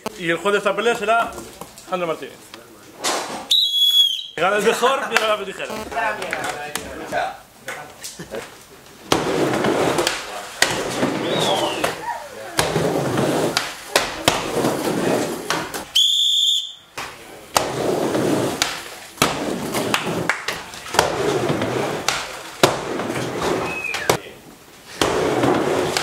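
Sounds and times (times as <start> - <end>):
high whistle: 3.5 - 4.4, 11.2 - 12.0, 15.9 - 16.9, 23.6 - 24.2
skateboard wheels rumbling on plywood: 9.0 - 12.0, 12.6 - 15.9, 17.5 - 24.2, 24.8 - 26.0
skateboard clacking on coping: 9.1 - 12.0, 12.6 - 15.9, 17.5 - 24.2, 24.9 - 26.0.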